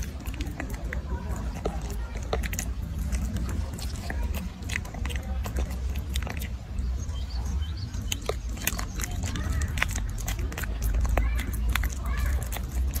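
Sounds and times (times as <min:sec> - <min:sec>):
monkey chewing: 0:00.0 - 0:13.0.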